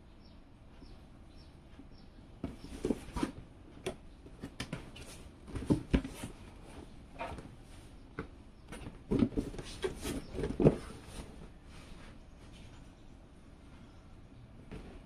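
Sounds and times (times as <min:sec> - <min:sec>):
cardboard box knocks and rubs: 0:04.4 - 0:06.4, 0:08.2 - 0:11.3.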